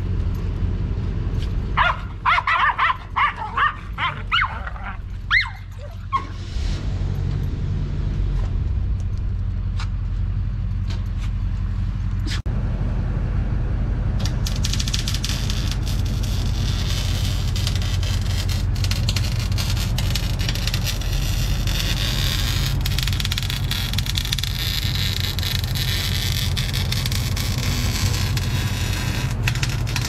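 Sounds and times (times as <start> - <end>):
low hum: 0.0 - 30.0
electric arc welding crackling: 14.2 - 30.0.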